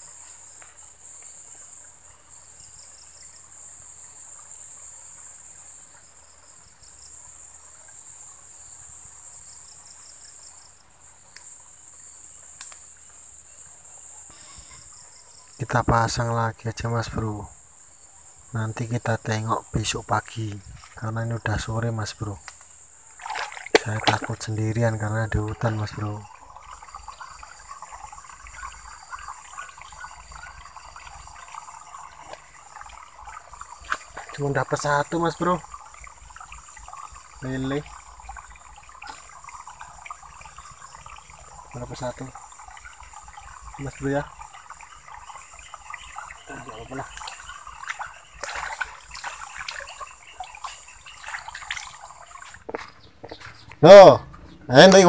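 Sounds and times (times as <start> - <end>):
high-pitched insect chorus: 0.0 - 55.0
shallow water splashing: 18.5 - 55.0.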